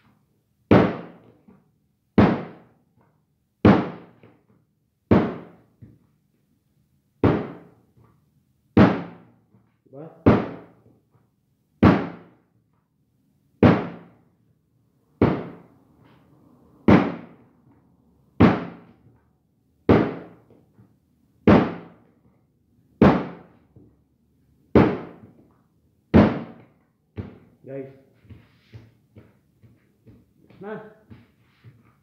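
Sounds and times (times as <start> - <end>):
dough slapping onto a table: 3.6 - 4.3, 21.5 - 22.0.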